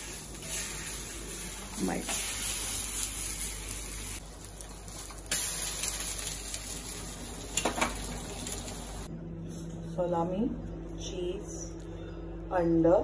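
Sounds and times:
food sizzling in oil: 0:00.0 - 0:09.1.

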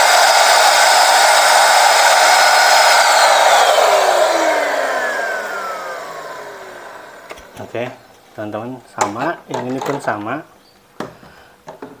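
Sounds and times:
motor spinning down: 0:00.0 - 0:07.6
stick vacuum cleaner running: 0:00.0 - 0:07.7.

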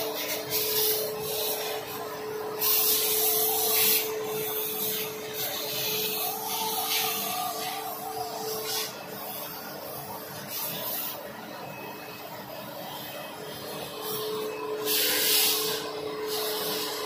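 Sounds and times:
compressed air hissing from hose: 0:00.0 - 0:09.4, 0:10.4 - 0:11.2, 0:14.8 - 0:17.0.

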